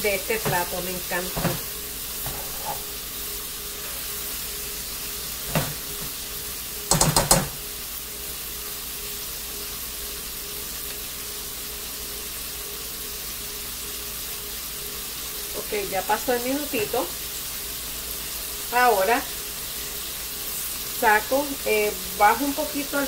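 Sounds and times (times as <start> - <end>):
sausages sizzling in oil: 0.0 - 23.0
utensil knocking against pot: 6.9 - 7.6.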